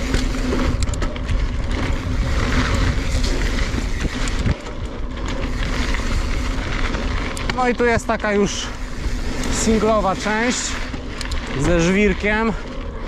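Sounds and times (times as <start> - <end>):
bike rattling with sharp clicks: 0.0 - 13.0
tyres rumbling over dirt and rock: 0.0 - 13.0
wind buffeting microphone: 0.0 - 13.0.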